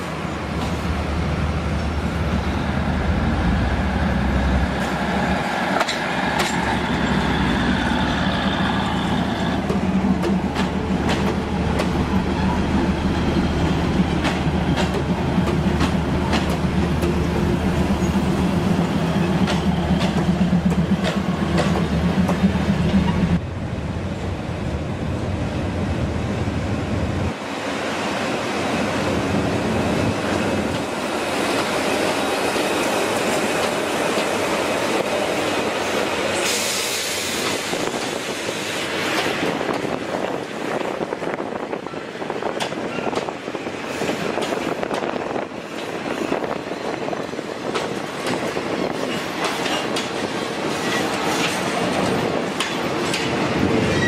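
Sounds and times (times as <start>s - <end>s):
diesel locomotive moving past: 0.0s - 54.0s
wheels clicking over rail joints: 47.6s - 54.0s.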